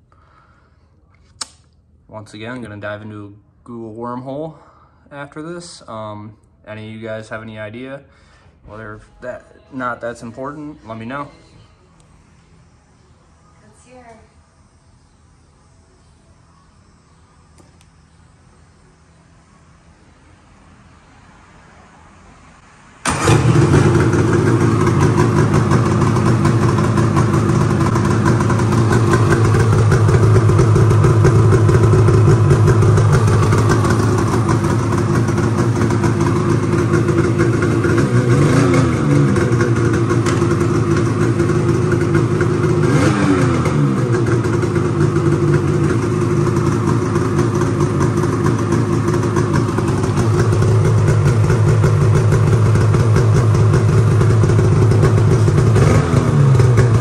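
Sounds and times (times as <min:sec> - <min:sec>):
snowmobile engine idling: 0:23.1 - 0:57.0.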